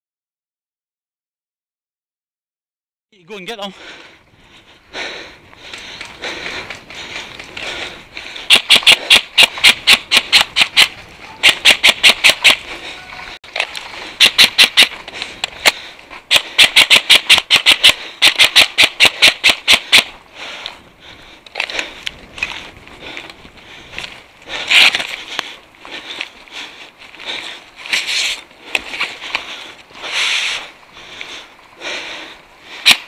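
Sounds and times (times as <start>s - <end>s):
airsoft rifle rapid shots: 8.5s - 12.6s, 14.2s - 14.9s, 16.3s - 20.1s.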